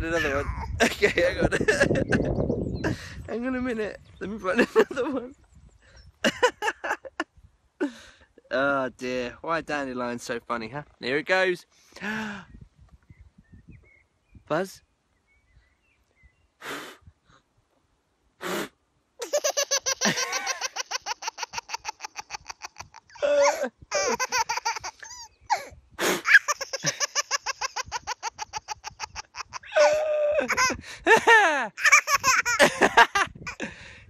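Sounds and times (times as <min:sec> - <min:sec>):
baby laughing: 0:00.0 - 0:02.3, 0:19.2 - 0:33.6.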